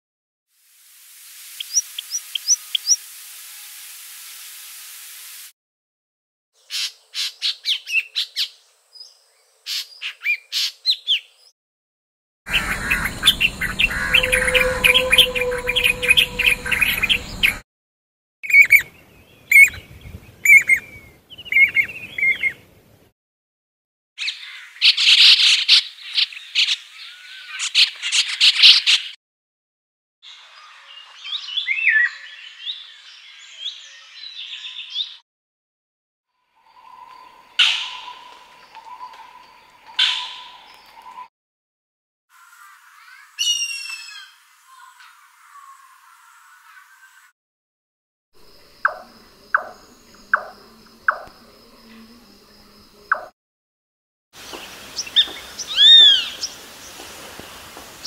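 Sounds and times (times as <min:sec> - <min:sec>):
bird singing dense run of notes: 0:12.5 - 0:17.6
thin bird chirps: 0:54.5 - 0:56.6.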